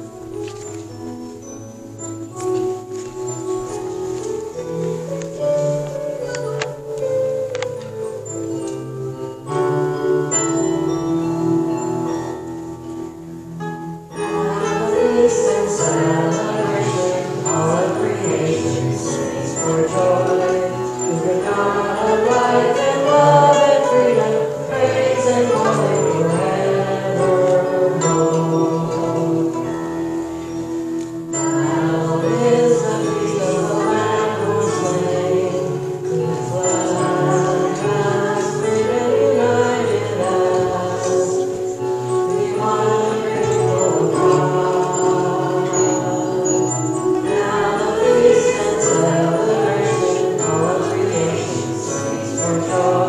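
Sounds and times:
small stringed instrument: 0:00.0 - 0:53.0
voices singing a hymn: 0:14.0 - 0:53.0.

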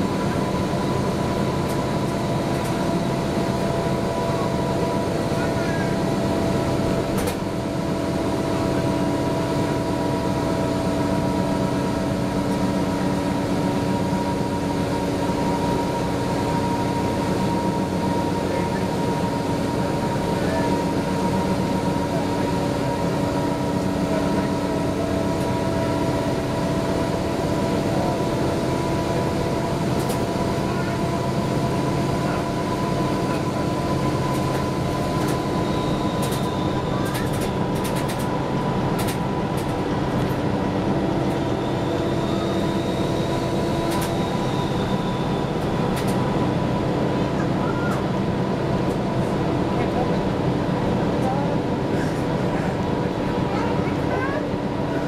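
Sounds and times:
bus engine drone with whine: 0:00.0 - 0:55.0
road noise: 0:00.0 - 0:55.0.

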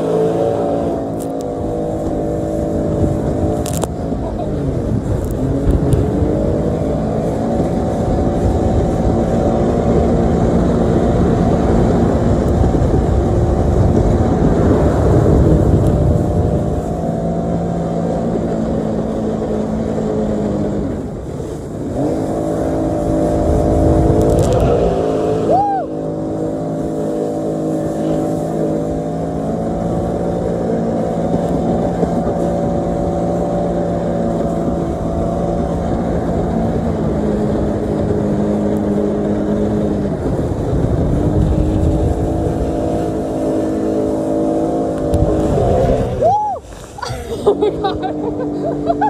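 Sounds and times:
rushing water: 0:00.0 - 0:49.0
watercraft engine running hard: 0:00.0 - 0:49.0.

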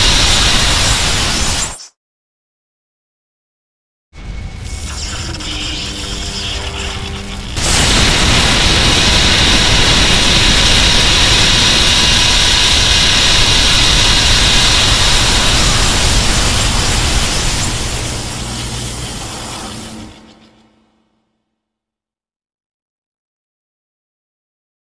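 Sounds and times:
loud rushing hiss: 0:00.0 - 0:01.8, 0:04.5 - 0:20.9.

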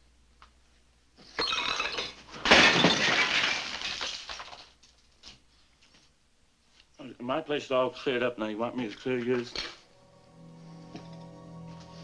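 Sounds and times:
crockery smashing: 0:01.4 - 0:04.8.

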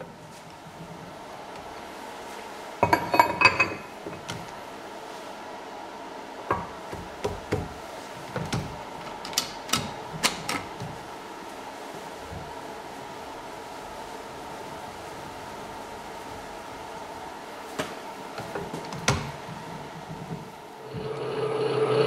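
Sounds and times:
metal tools clanking on metal: 0:02.8 - 0:03.9.

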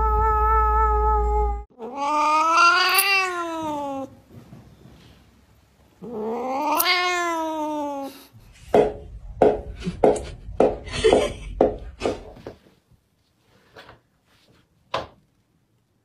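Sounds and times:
cat meowing: 0:00.0 - 0:04.1, 0:06.0 - 0:08.2
cat yowling: 0:00.0 - 0:04.1, 0:06.0 - 0:08.2
low hum: 0:08.4 - 0:12.7.

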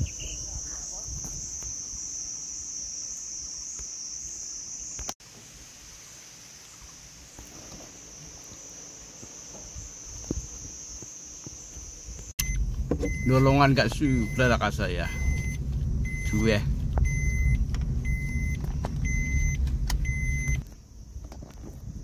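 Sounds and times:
insects buzzing: 0:00.0 - 0:12.4
low rumble: 0:12.4 - 0:20.6.

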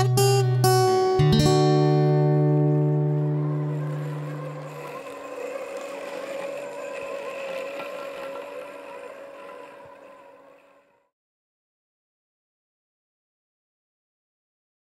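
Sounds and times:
robotic lawnmower motor whine: 0:02.0 - 0:11.1.

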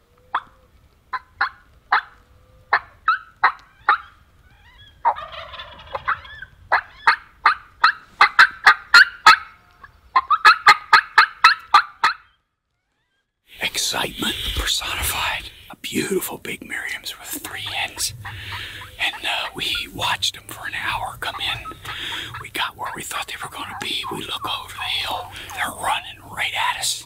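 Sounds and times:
turkey gobble: 0:00.3 - 0:12.3, 0:17.2 - 0:25.6
turkeys yelping: 0:00.3 - 0:12.3, 0:17.0 - 0:26.0.

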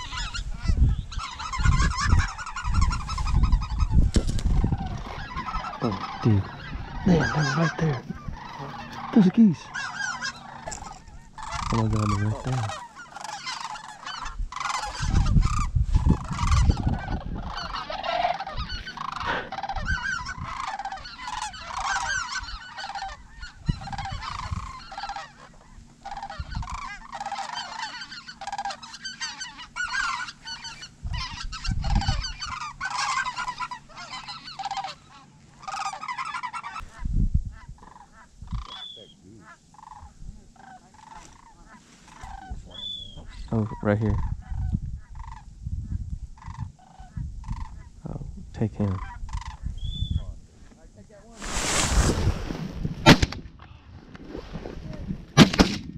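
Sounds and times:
low microphone rumbles: 0:00.0 - 0:12.8, 0:14.2 - 0:20.6, 0:36.8 - 0:38.7, 0:41.6 - 0:55.9
geese honking: 0:00.0 - 0:45.6, 0:46.2 - 0:55.7.

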